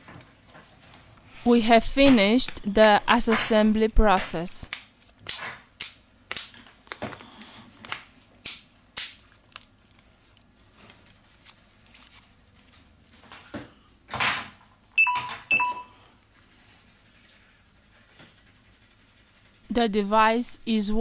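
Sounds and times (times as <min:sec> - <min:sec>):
short electronic beeps: 0:15.0 - 0:15.9
handling rubs and scrapes: 0:16.3 - 0:20.4.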